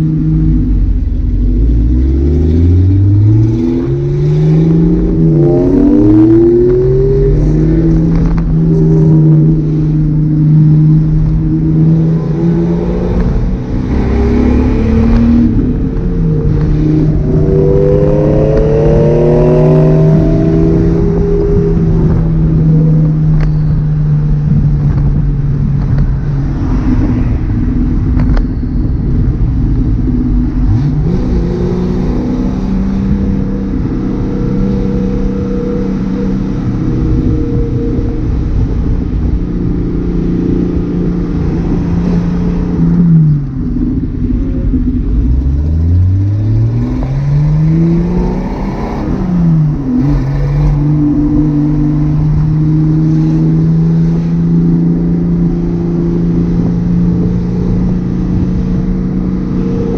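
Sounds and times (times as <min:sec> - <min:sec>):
car engine and exhaust while driving: 0:00.0 - 0:59.9.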